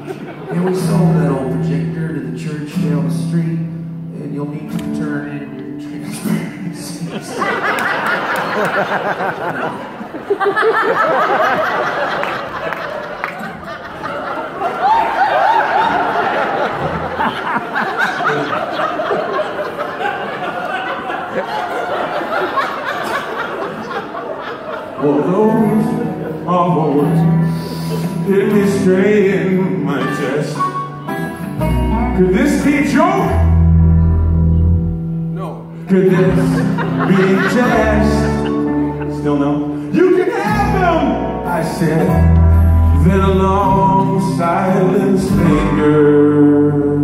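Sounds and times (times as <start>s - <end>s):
acoustic guitar: 0.0s - 7.3s, 25.0s - 47.0s
audience laughter and chatter: 0.0s - 47.0s
man singing: 0.5s - 7.3s, 25.0s - 30.9s, 31.9s - 33.6s, 35.8s - 47.0s
upright bass: 0.6s - 7.0s, 25.0s - 47.0s.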